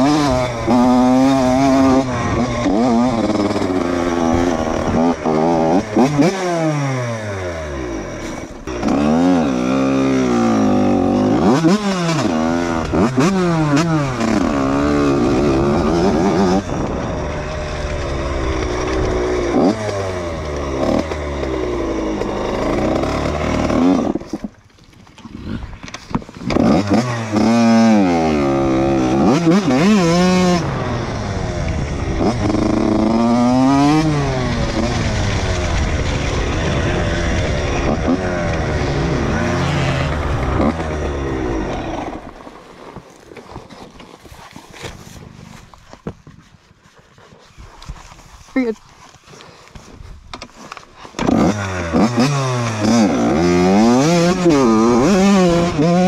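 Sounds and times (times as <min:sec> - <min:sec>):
dirt bike engine revving: 0:00.0 - 0:24.5, 0:26.4 - 0:43.0, 0:51.0 - 0:56.0.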